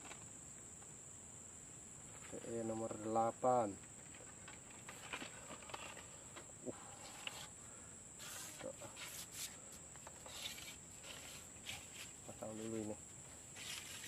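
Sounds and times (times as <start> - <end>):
fishing pole clicks and rustles: 4.0 - 7.6, 8.2 - 12.9.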